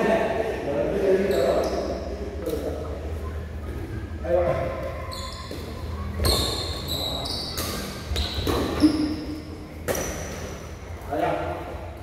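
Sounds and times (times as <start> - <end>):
shoes squeaking on court floor: 1.2 - 10.7.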